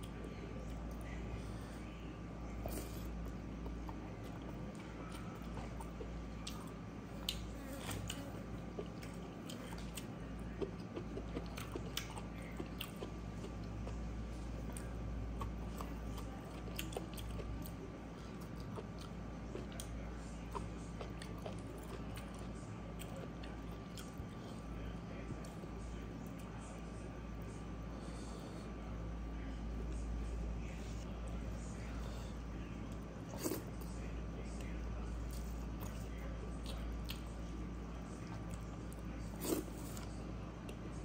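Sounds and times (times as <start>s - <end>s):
steady low hum: 0.0s - 41.0s
close chewing: 2.5s - 28.7s, 34.6s - 40.8s.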